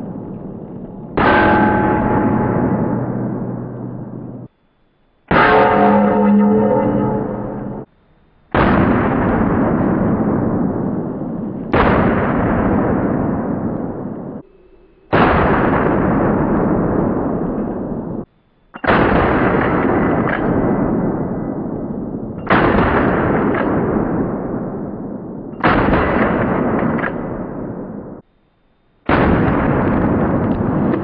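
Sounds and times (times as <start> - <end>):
shotgun blasts: 1.1 - 4.5, 8.5 - 14.4, 15.1 - 28.2, 29.1 - 31.0.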